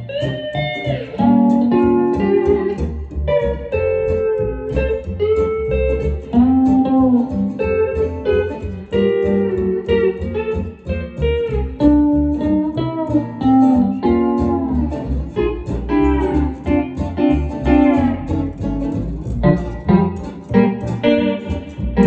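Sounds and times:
pedal steel guitar sliding notes: 0:00.0 - 0:22.0.

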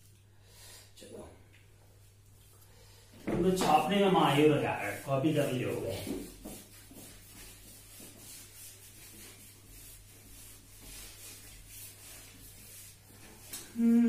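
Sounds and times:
duster rubbing on whiteboard: 0:03.4 - 0:13.6.

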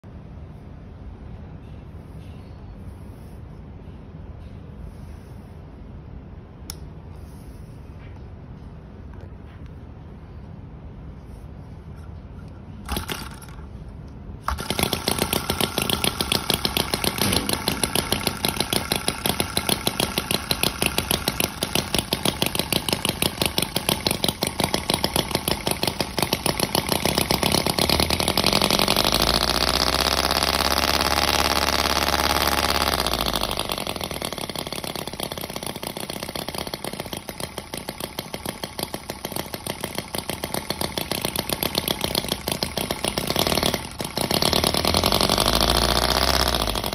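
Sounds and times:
model engine popping: 0:12.8 - 0:13.7, 0:14.4 - 0:46.9.

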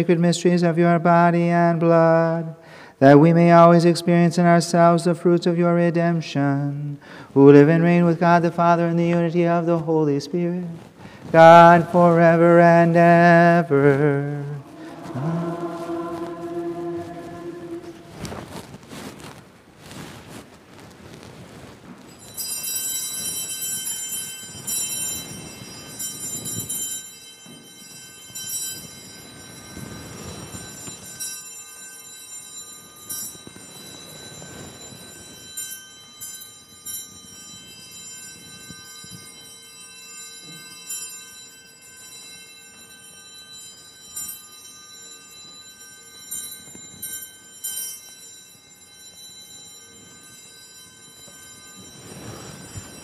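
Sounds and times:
altar bells ringing: 0:11.3 - 0:18.6, 0:22.1 - 0:53.0.

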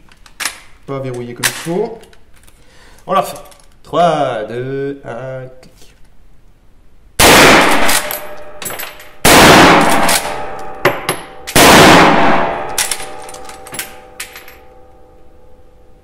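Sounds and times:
rifle shots: 0:07.2 - 0:08.6, 0:09.2 - 0:10.8, 0:11.5 - 0:13.2.

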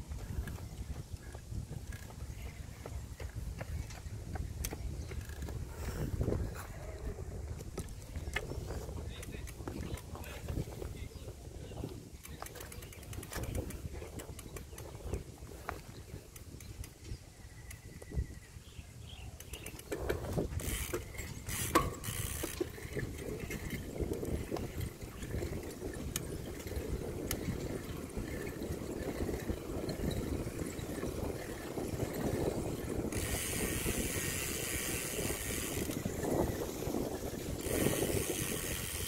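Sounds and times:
bicycle tyre rumble: 0:00.0 - 0:17.1, 0:17.9 - 0:39.0
freewheel clicking and rattling: 0:00.1 - 0:06.4, 0:12.2 - 0:15.2, 0:19.4 - 0:39.0.

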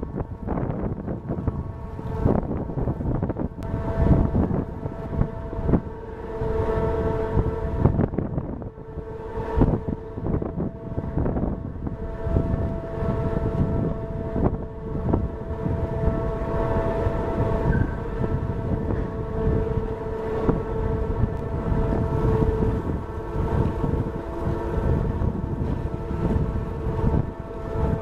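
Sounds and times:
ship machinery hum: 0:00.0 - 0:28.0
wind buffeting microphone: 0:00.0 - 0:28.0.

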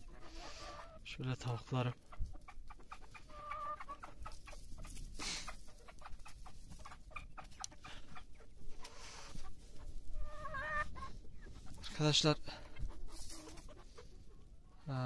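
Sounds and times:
hens clucking: 0:00.0 - 0:15.0
hen drawn-out call: 0:10.2 - 0:11.1.

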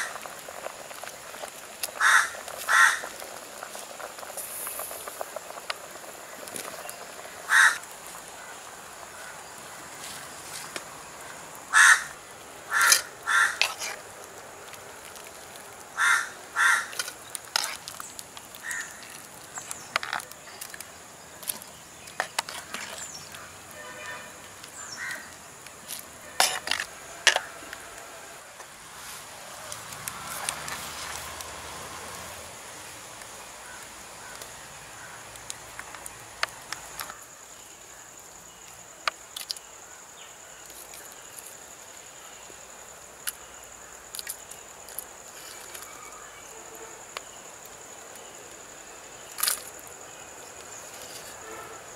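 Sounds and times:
crows cawing: 0:02.0 - 0:03.1, 0:07.4 - 0:09.4, 0:11.7 - 0:13.7, 0:16.0 - 0:17.0, 0:18.6 - 0:19.1, 0:24.8 - 0:25.4.

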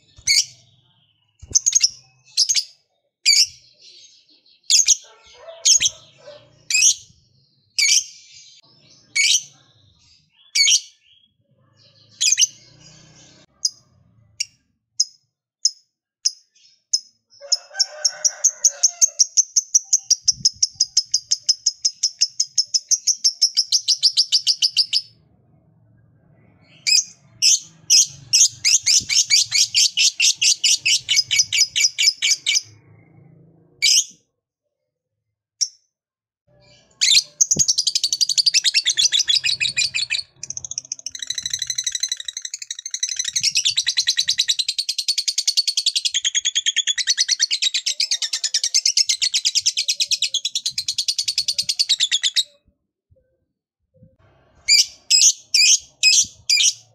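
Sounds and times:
lovebird chirps and chattering trills: 0:18.9 - 0:25.1, 0:26.7 - 0:32.7, 0:37.0 - 0:52.5.

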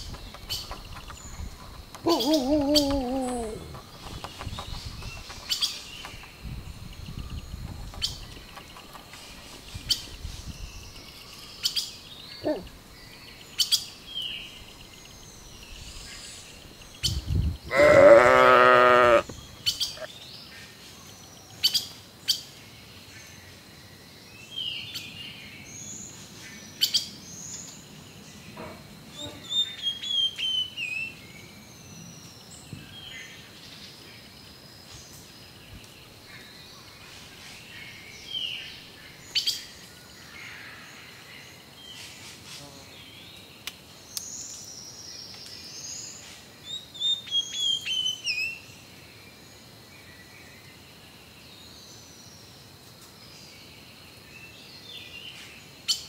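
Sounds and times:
small birds chirping: 0:00.0 - 0:56.0
long wavering bleat: 0:17.7 - 0:19.3.

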